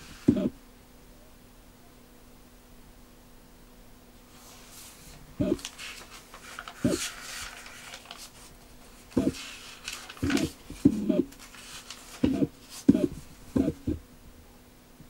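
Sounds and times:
paper pages rustling: 4.4s - 13.8s.

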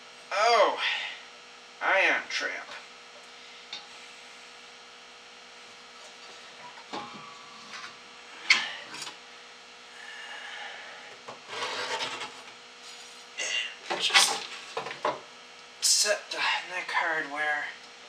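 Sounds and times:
metal scraping and rubbing: 6.0s - 9.2s, 11.4s - 13.3s.

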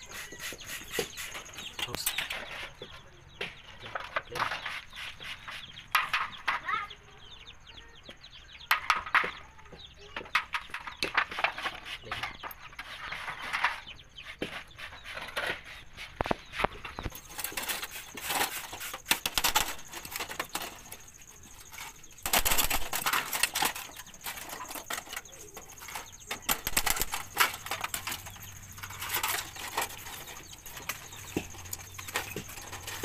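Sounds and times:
metal sheet rattling and scraping: 14.5s - 33.0s.

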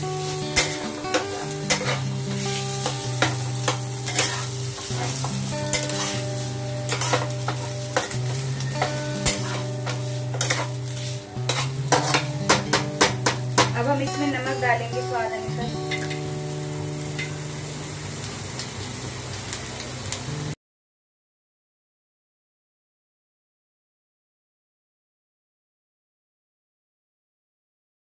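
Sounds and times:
soft background music: 0.0s - 18.0s
low sizzle: 0.0s - 20.6s
metal spatula scraping a pan: 0.2s - 13.8s.

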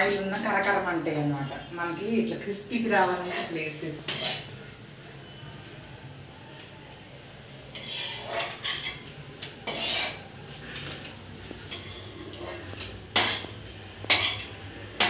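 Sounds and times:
metal spoon scraping a pan: 2.8s - 4.6s, 7.6s - 15.0s.

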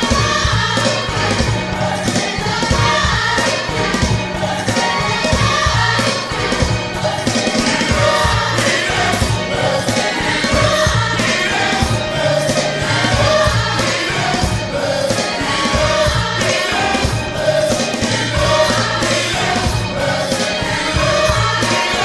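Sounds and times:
gospel choir singing: 0.0s - 22.0s.

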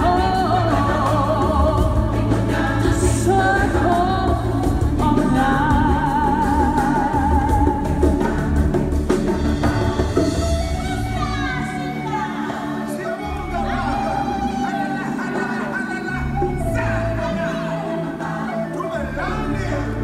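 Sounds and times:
choir singing: 0.0s - 20.0s
lead voice holding long notes: 10.9s - 20.0s.

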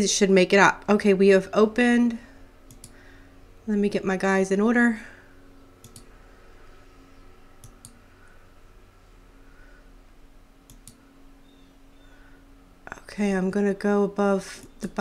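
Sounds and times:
faint steady hum: 0.0s - 15.0s
computer mouse double clicks: 5.8s - 6.1s.

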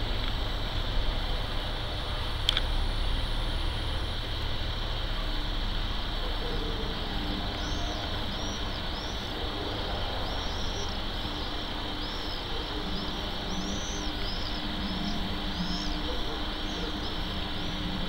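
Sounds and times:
outdoor rumble and hiss: 0.0s - 18.0s
bird chirps: 7.4s - 17.9s.

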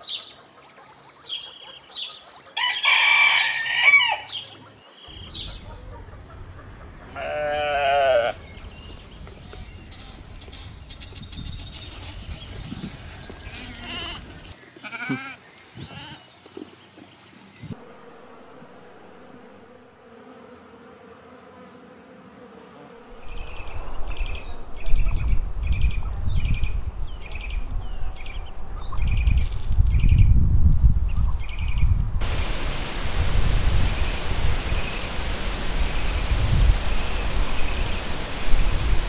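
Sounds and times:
cow mooing: 7.2s - 8.4s
low rustling rumble: 23.2s - 39.0s.

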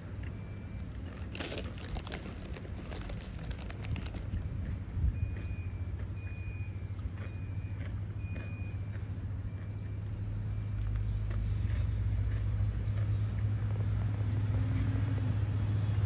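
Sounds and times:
reversing alarm beeping: 0.0s - 2.2s, 4.3s - 11.7s
low hum of traffic: 0.0s - 16.0s.

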